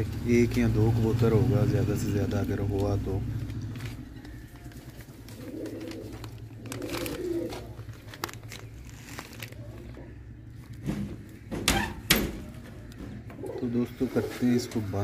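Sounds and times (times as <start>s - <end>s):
pigeons cooing: 4.0s - 8.8s, 9.6s - 15.0s.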